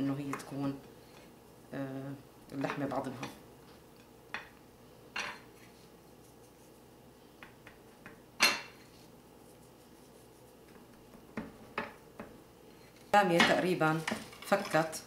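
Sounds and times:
ceramic dishes clinking: 8.4 - 8.8.

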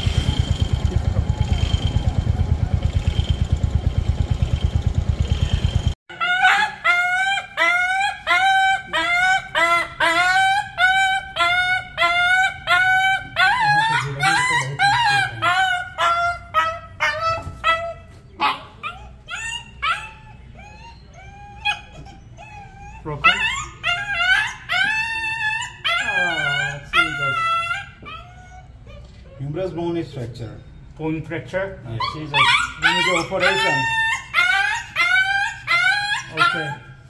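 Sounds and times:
motorcycle engine idling: 0.0 - 6.0
puppy yelping in pain: 6.1 - 29.6, 31.9 - 37.0.

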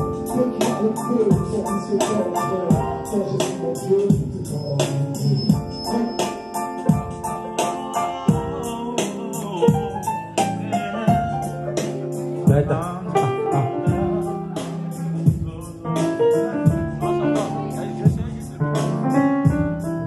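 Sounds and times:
high ticking beat: 0.0 - 10.5
person singing: 0.0 - 19.6
keyboard: 0.0 - 20.0.

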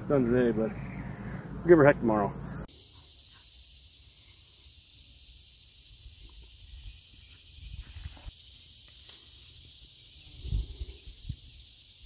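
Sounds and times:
high insect chorus: 0.0 - 12.0.

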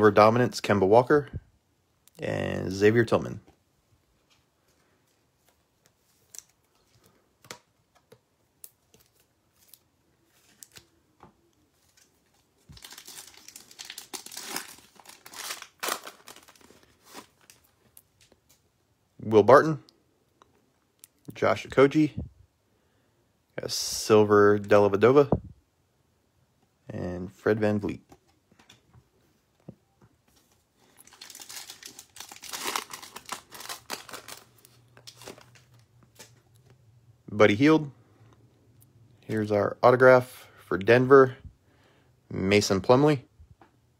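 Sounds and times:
cards rustling and clicking: 4.2 - 18.6, 30.3 - 36.8
foil wrapper crinkling and tearing: 12.0 - 17.8, 30.8 - 36.3.

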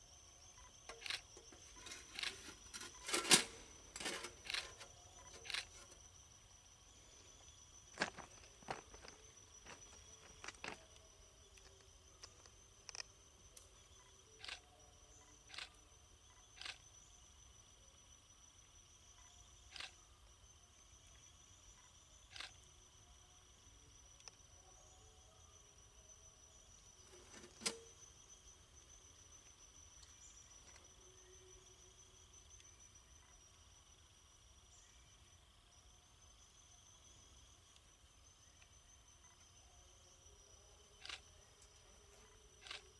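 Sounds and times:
insects chirring: 0.0 - 42.9.

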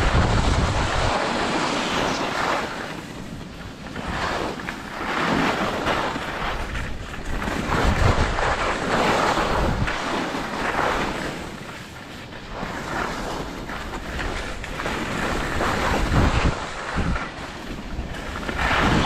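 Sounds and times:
skis sliding over snow: 0.0 - 19.0
wind buffeting microphone: 0.0 - 19.0.

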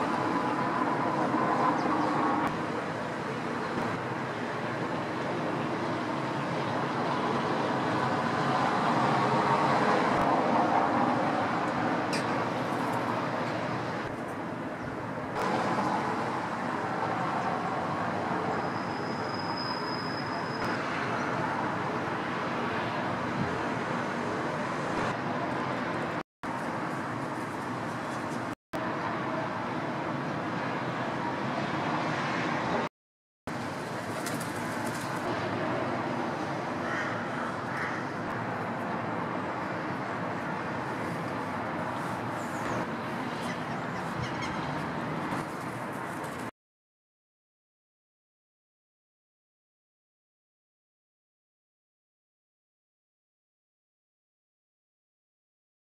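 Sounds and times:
distant traffic hum: 0.0 - 32.9, 33.5 - 46.5
thin high whistle: 18.6 - 20.7
birds calling: 36.8 - 38.3, 42.4 - 44.9.

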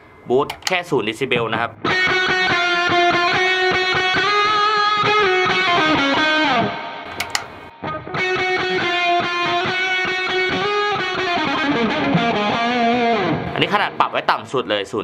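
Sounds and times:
footswitch click: 0.4 - 0.8, 7.1 - 7.6
distorted electric guitar chords: 1.8 - 14.2.

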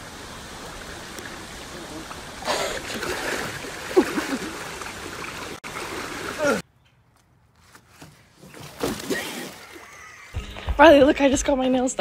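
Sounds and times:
creek water running over rock: 0.0 - 6.6
person splashing into water: 2.4 - 6.6, 8.5 - 10.1.

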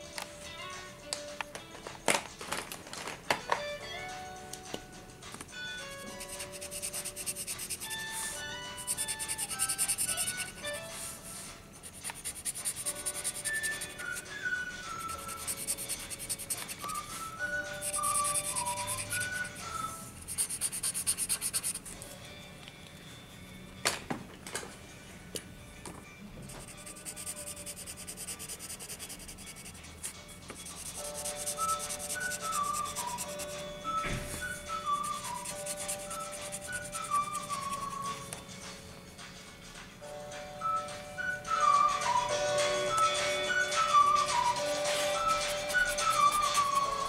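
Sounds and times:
faint background music: 0.0 - 47.0
simple background melody: 0.0 - 47.0
marker scratching on paper: 5.9 - 14.3, 15.0 - 17.1, 17.7 - 21.9, 26.5 - 33.6, 34.8 - 38.2, 44.5 - 47.0.

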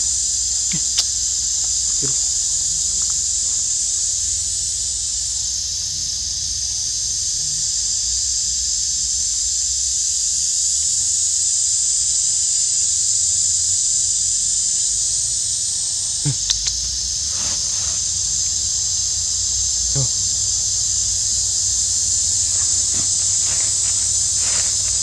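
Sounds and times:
insect chorus drone: 0.0 - 25.0.

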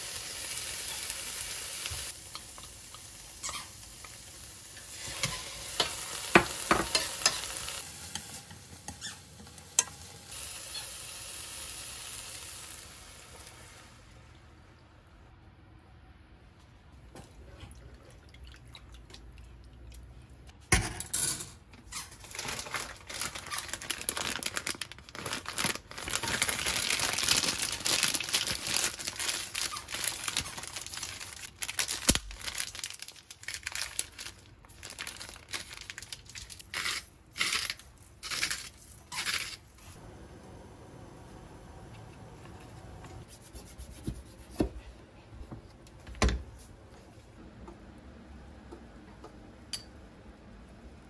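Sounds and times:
plastic packet crinkling: 22.1 - 39.7.

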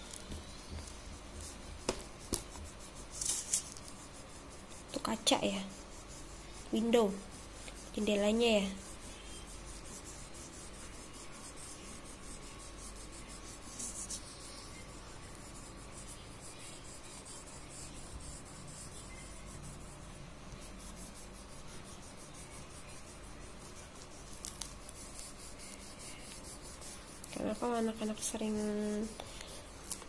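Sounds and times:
crayon rubbing on paper: 0.1 - 30.0.

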